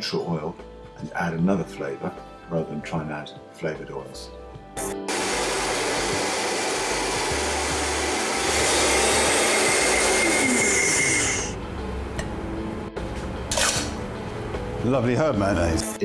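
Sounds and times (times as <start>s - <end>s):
countertop blender running: 5.0s - 12.2s.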